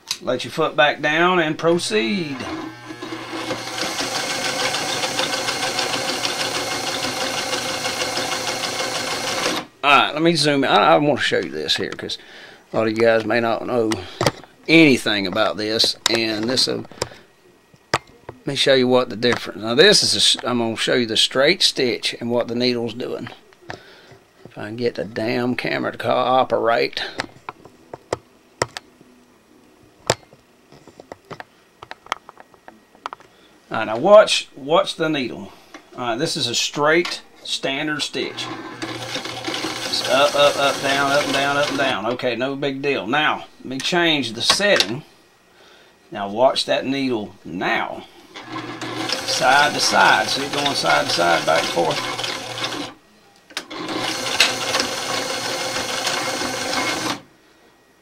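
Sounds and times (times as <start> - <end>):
sewing machine clattering: 3.0 - 9.7, 38.3 - 41.9, 48.4 - 52.9, 53.6 - 57.2.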